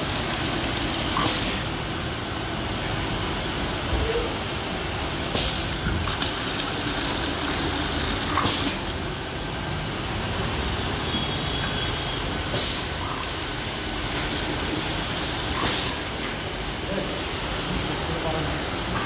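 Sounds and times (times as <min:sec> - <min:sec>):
water pouring into plastic bucket: 0:00.0 - 0:01.6, 0:05.8 - 0:09.1, 0:12.8 - 0:15.8
steady background noise: 0:00.0 - 0:19.0
pneumatic air hisses: 0:01.2 - 0:01.5, 0:05.3 - 0:05.7, 0:12.5 - 0:12.9, 0:15.6 - 0:16.1.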